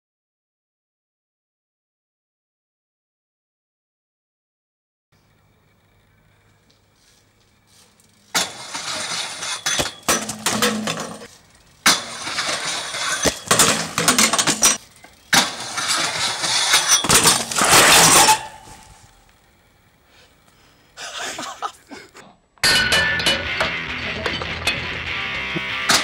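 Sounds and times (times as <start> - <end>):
bike rolling and scraping: 5.2 - 21.9
bike landing knocks and clatters: 8.2 - 19.0.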